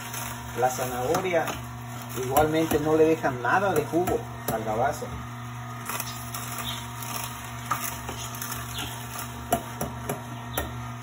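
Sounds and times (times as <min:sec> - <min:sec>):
celery cracking and crunching: 0:00.0 - 0:03.1, 0:05.7 - 0:09.8
juicer motor hum: 0:00.0 - 0:11.0.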